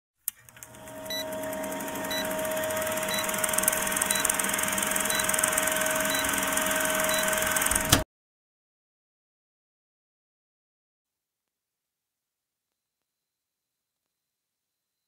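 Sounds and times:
film projector whirring: 0:00.3 - 0:08.0
short high beeps: 0:04.0 - 0:04.4, 0:05.0 - 0:07.5.

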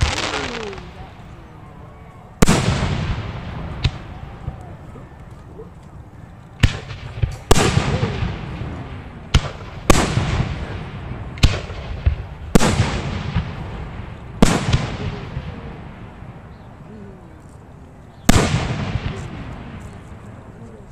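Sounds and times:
fireworks bangs with hiss: 0:00.0 - 0:01.0, 0:02.4 - 0:04.6, 0:06.6 - 0:16.4, 0:18.2 - 0:20.1.

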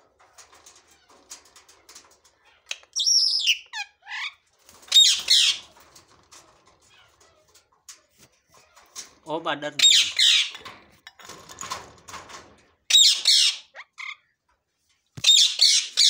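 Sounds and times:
faint clicks and scratches: 0:00.0 - 0:03.0, 0:04.5 - 0:09.4
parrots squawking: 0:02.4 - 0:05.7, 0:09.8 - 0:10.6, 0:12.9 - 0:14.3, 0:15.2 - 0:16.0.

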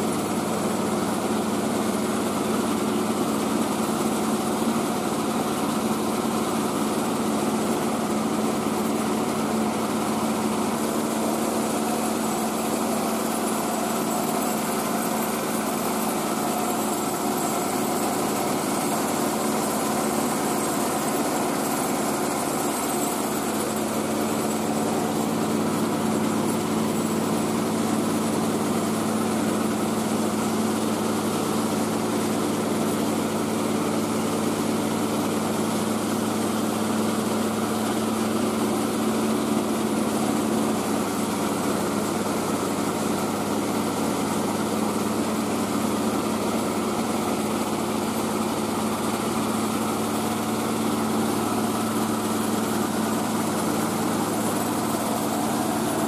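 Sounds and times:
rice-milling machine drone: 0:00.0 - 0:56.0.

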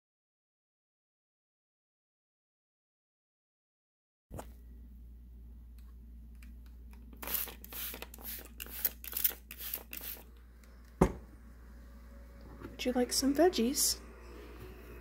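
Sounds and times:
spray bottle spraying: 0:07.2 - 0:10.3.

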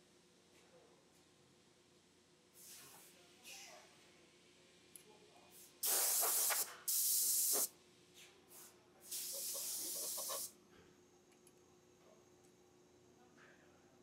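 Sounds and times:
pressurised jet hissing bursts: 0:05.8 - 0:07.7, 0:09.1 - 0:10.5.

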